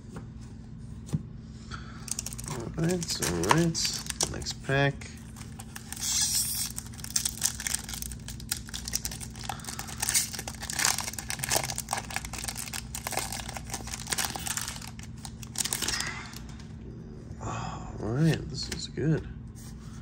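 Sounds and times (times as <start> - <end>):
foil wrapper crinkling and tearing: 2.1 - 4.6, 5.2 - 16.6.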